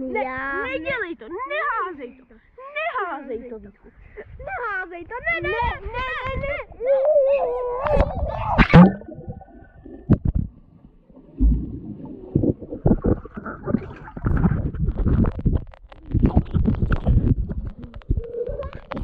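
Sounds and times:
underwater gurgling and bubbling: 7.6 - 19.0
water splashing: 7.6 - 19.0
low underwater thumps: 7.8 - 19.0.

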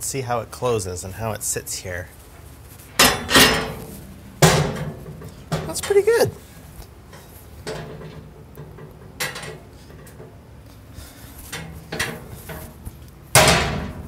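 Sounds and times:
loud metal clunk: 3.0 - 5.9, 13.3 - 14.0
metal knocks and rattles: 3.0 - 6.2, 7.6 - 10.4, 11.5 - 14.0.

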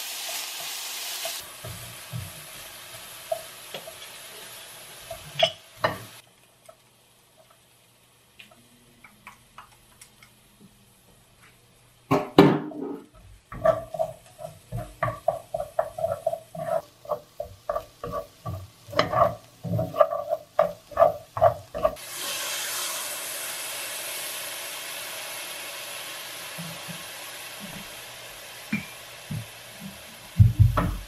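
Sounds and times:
steady hiss: 0.0 - 12.1, 13.1 - 31.0
chopsticks tapping metal pan: 13.5 - 22.0.

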